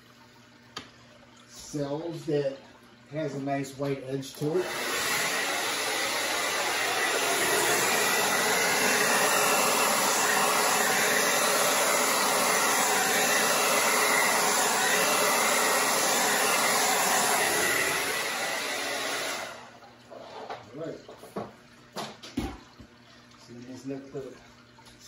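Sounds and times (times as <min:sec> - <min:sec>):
hair dryer running: 0:04.3 - 0:19.8.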